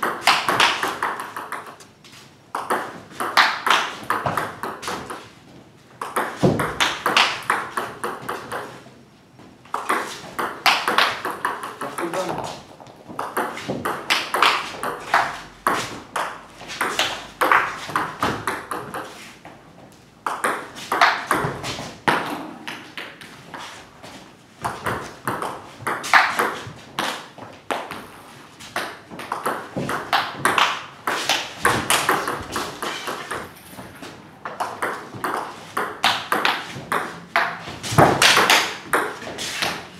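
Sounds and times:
ping pong ball off bats: 0:00.0 - 0:01.9, 0:02.5 - 0:05.3, 0:06.0 - 0:08.9, 0:09.7 - 0:19.2, 0:20.2 - 0:23.5, 0:24.6 - 0:39.8
ball bouncing on table: 0:02.5 - 0:05.2, 0:06.0 - 0:08.8.

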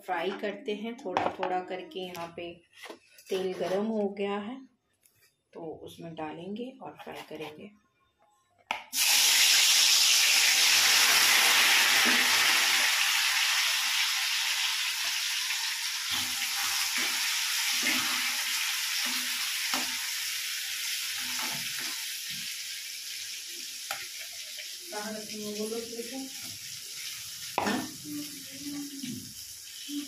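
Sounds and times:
fish sizzling in hot oil: 0:08.9 - 0:30.0.

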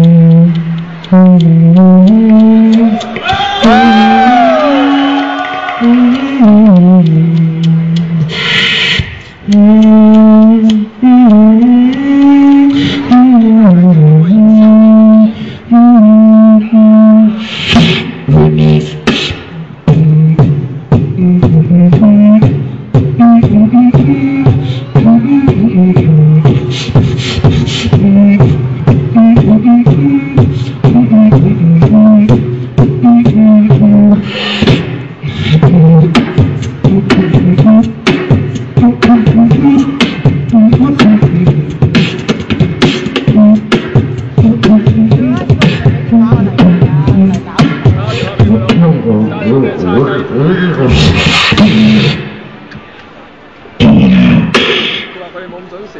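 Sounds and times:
hummed bass melody: 0:00.0 - 0:03.0, 0:05.8 - 0:08.3, 0:09.4 - 0:17.4, 0:18.2 - 0:19.0, 0:19.6 - 0:27.1, 0:27.9 - 0:34.3, 0:35.5 - 0:41.9, 0:42.6 - 0:49.6
hummed bending tone: 0:00.0 - 0:04.9, 0:05.8 - 0:08.4, 0:09.4 - 0:17.4, 0:18.1 - 0:26.7, 0:27.9 - 0:34.4
beatboxing vocal drum beat: 0:00.0 - 0:52.5, 0:53.8 - 0:55.2.

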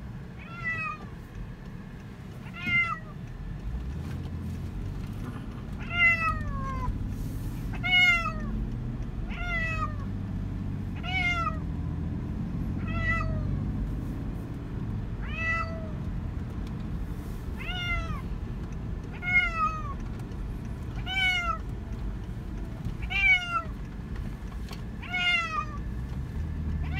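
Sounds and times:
low steady rumble: 0:00.0 - 0:26.9
cat meowing: 0:00.4 - 0:01.1, 0:02.4 - 0:03.2, 0:05.8 - 0:06.9, 0:07.7 - 0:08.5, 0:09.3 - 0:10.1, 0:11.0 - 0:11.6, 0:12.8 - 0:13.6, 0:15.2 - 0:16.0, 0:17.6 - 0:18.2, 0:19.1 - 0:20.0, 0:21.0 - 0:21.7, 0:23.0 - 0:23.7, 0:25.0 - 0:25.8.

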